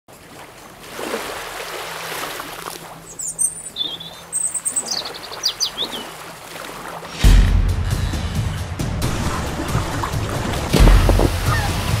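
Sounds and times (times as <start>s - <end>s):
rushing water: 0.1s - 7.6s, 8.6s - 12.0s
small bird chirping: 3.1s - 6.1s.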